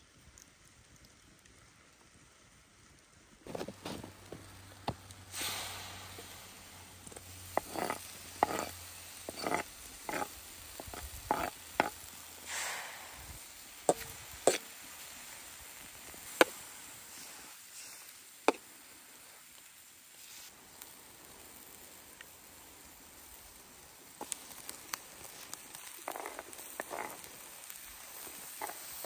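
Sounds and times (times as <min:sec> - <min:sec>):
meat sizzling in a hot pan: 0:04.4 - 0:29.0
knife scraping and tapping: 0:07.1 - 0:12.0, 0:13.9 - 0:14.7.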